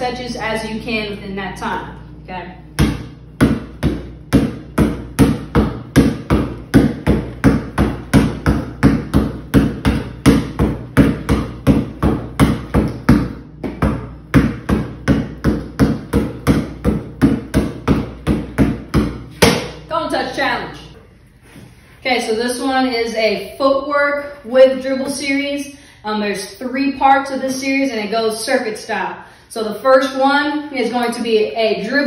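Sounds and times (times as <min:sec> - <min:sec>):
basketball bouncing on concrete: 0:02.7 - 0:19.8.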